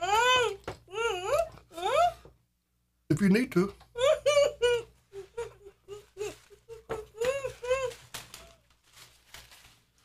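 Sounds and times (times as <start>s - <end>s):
woman whimpering and moaning: 0.0s - 2.3s, 4.0s - 8.6s.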